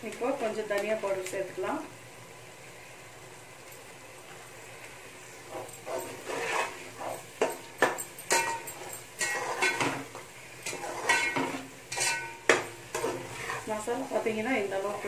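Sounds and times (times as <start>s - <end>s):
spatula scraping metal pot: 5.5s - 7.6s, 8.3s - 13.9s.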